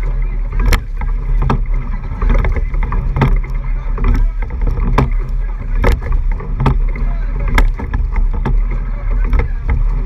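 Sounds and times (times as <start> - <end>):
oars knocking in oarlocks: 0.0 - 10.0
water rushing along hull: 0.0 - 10.0
wind buffeting microphone: 0.0 - 10.0.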